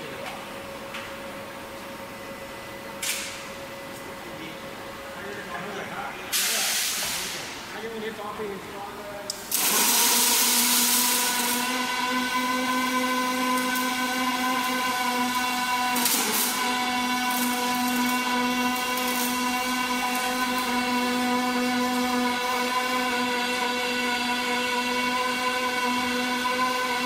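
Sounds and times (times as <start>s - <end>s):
welding arc hiss: 6.3s - 7.6s, 16.0s - 16.5s, 18.8s - 19.4s
welding arc buzz: 6.3s - 7.7s, 9.3s - 27.0s.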